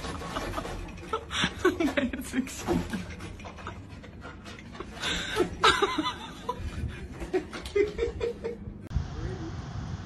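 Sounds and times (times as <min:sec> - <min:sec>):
person chuckling and laughing: 0:00.0 - 0:08.8.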